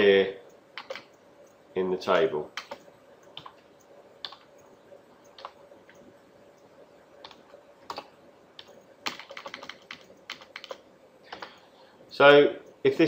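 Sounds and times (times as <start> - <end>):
keyboard keys tapping: 0.5 - 1.6, 2.6 - 11.6.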